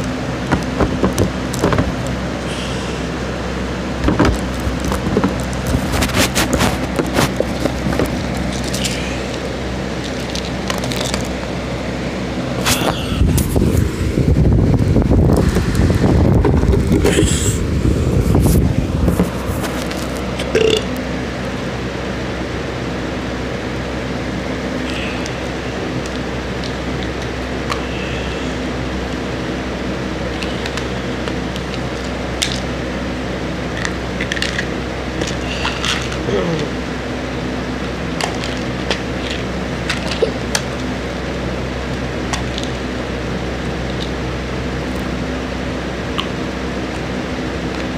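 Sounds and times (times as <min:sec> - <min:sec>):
low room hum: 0:00.0 - 0:47.9
person burping: 0:20.4 - 0:21.0, 0:36.2 - 0:36.8.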